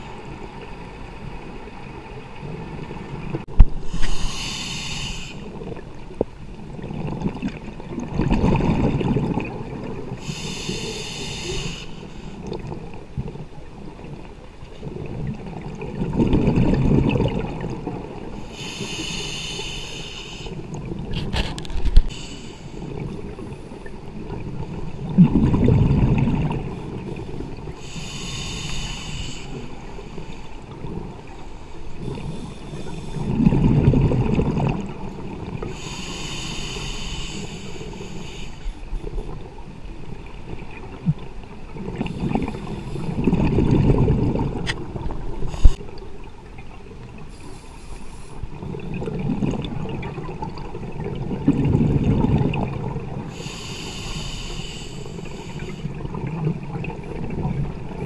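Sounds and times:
regulator inhalation hiss: 3.8 - 5.5, 10.2 - 12.4, 18.4 - 20.6, 22.1 - 22.9, 27.8 - 30.5, 35.7 - 38.8, 53.3 - 56.0
diver exhaling bubbles: 41.8 - 45.8.

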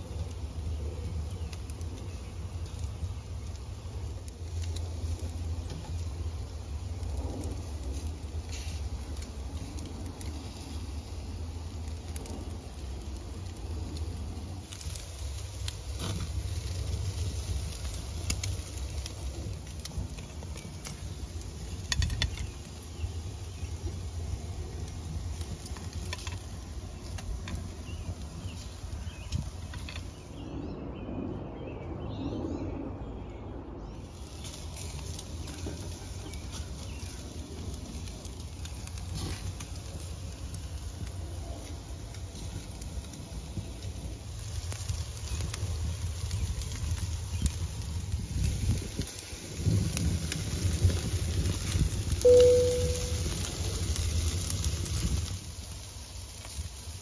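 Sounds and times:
sharp pops and crackles: 0.0 - 30.2, 34.1 - 57.0
food sizzling on charcoal grill: 0.0 - 30.5, 34.0 - 57.0
steady low rumble: 0.0 - 57.0
low rumble: 49.6 - 53.8.

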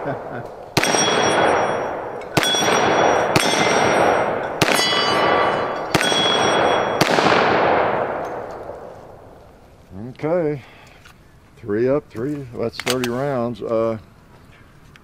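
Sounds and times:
pistol shots with echo: 0.1 - 9.3
steel plates clanging: 0.8 - 7.0.

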